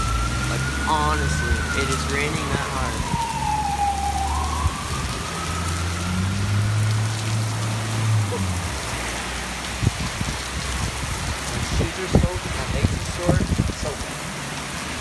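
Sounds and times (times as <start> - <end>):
siren wailing: 0.0 - 8.7
car driving through wet lot: 0.0 - 15.0
heavy rain on pavement: 0.0 - 15.0.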